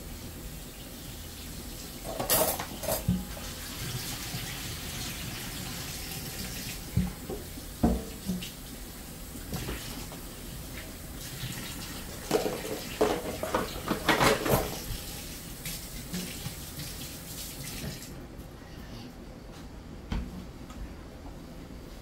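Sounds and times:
tap running into a sink: 6.4s - 8.6s.

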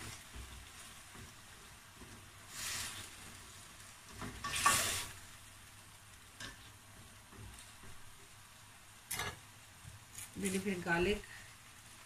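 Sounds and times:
spatula scraping a pan: 0.0s - 5.2s
food sizzling in a frying pan: 0.0s - 12.0s.

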